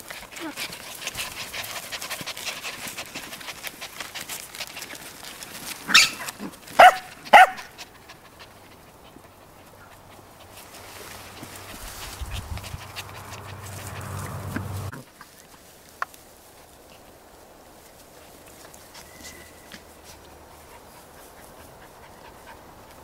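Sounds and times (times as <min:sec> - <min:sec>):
puppies rustling through dry grass: 0:00.0 - 0:23.0
puppy yapping: 0:05.9 - 0:07.8.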